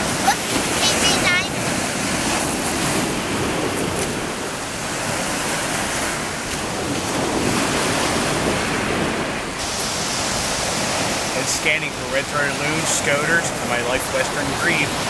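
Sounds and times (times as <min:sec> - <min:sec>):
surf washing up pebble beach: 0:00.0 - 0:15.0
wind buffeting microphone: 0:00.0 - 0:15.0.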